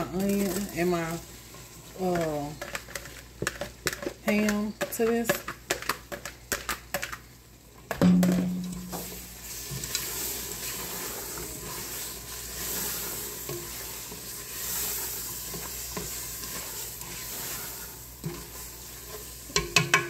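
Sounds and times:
roux sizzling: 0.0s - 20.0s
spoon stirring and scraping in pot: 0.0s - 20.0s
spoon knocking against pot: 19.6s - 20.0s.

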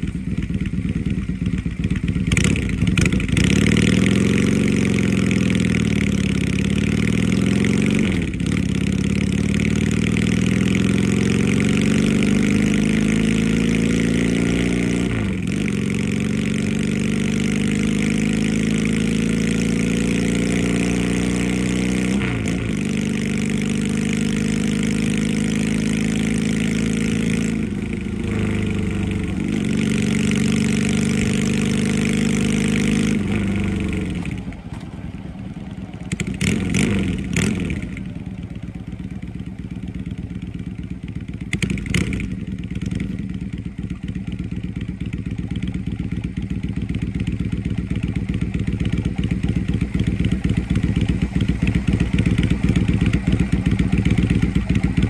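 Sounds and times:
motorcycle engine revving through gears: 0.0s - 55.0s
engine throttle blips: 45.8s - 55.0s.

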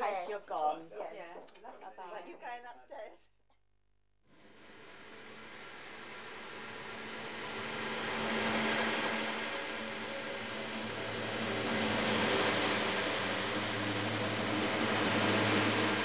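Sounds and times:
low hum: 4.3s - 16.0s.

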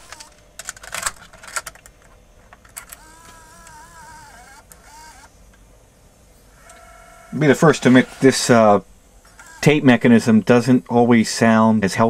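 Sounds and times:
tape loading motor whirring: 0.0s - 0.4s, 2.7s - 5.5s, 6.5s - 10.2s.

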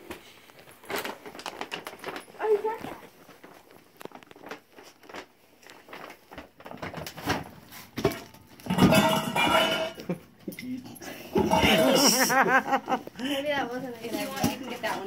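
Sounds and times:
paper bag and tissue rustling: 0.0s - 8.7s, 11.4s - 15.0s
short crackles and taps: 2.8s - 7.2s.

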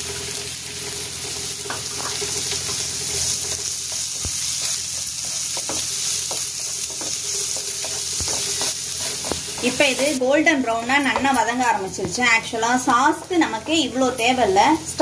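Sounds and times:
onions sizzling in oil: 0.0s - 15.0s
spatula scraping pan: 1.7s - 14.1s
spatula knocking pan: 3.8s - 10.1s, 10.7s - 13.5s.

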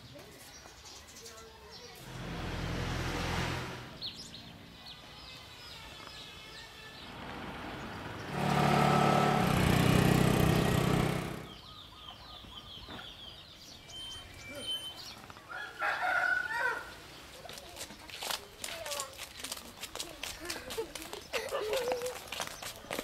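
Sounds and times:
bird chirps: 3.9s - 7.2s, 11.3s - 15.4s
scooter engine running: 7.2s - 11.6s
rooster crowing: 15.5s - 16.9s.

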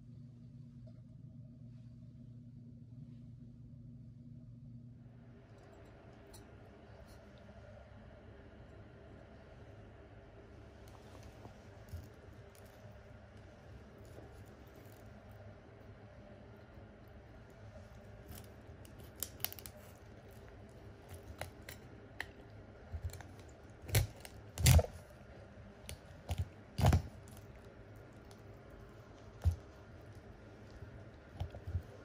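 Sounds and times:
knife crunching through fish bone: 18.1s - 25.1s, 25.9s - 28.5s, 29.3s - 30.3s.

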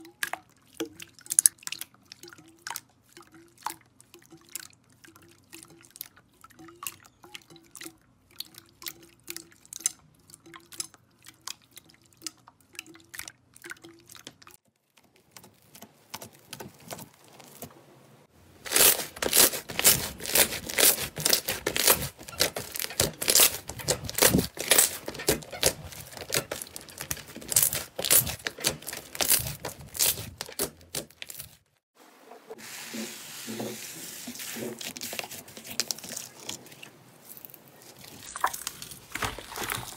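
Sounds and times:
wet clicks and drips of slime: 0.0s - 17.1s.

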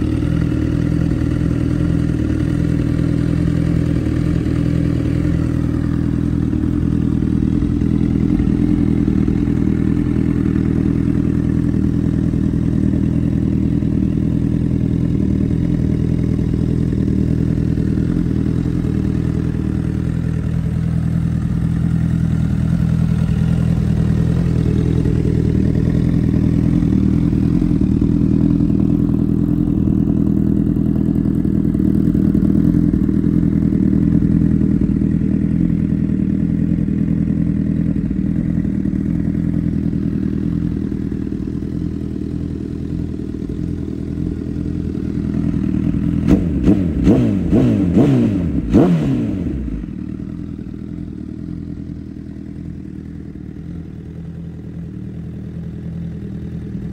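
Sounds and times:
motorcycle engine idling: 0.0s - 56.9s
motorcycle engine revving: 0.0s - 56.9s.

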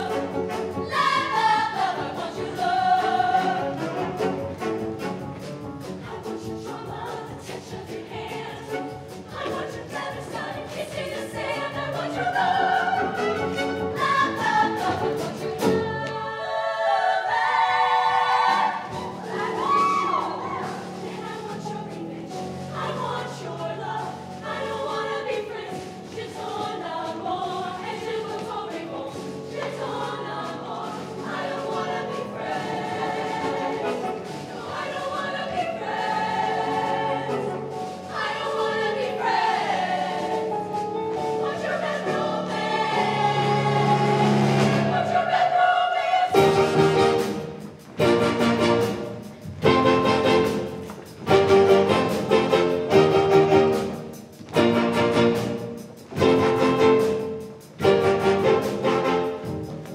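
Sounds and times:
choir singing: 0.0s - 59.9s
live band playing: 46.4s - 59.9s.

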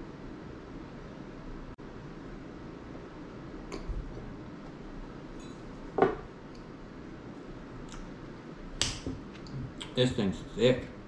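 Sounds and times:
tableware clinking: 5.4s - 6.3s
glass knocking on wooden table: 6.0s - 6.2s.

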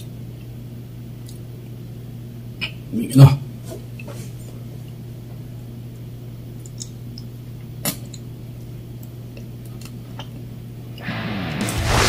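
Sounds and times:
low hum: 11.0s - 12.0s.

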